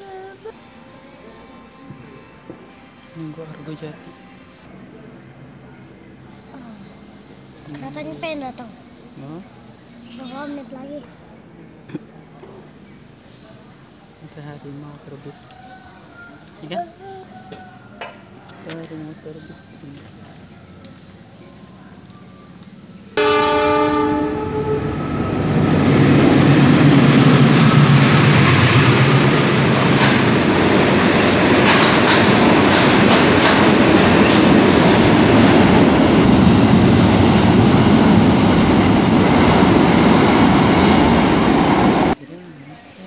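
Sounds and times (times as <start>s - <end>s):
locomotive engine hum: 19.7s - 42.2s
train horn: 23.2s - 30.4s
train wheels rumbling on rail: 23.2s - 42.2s.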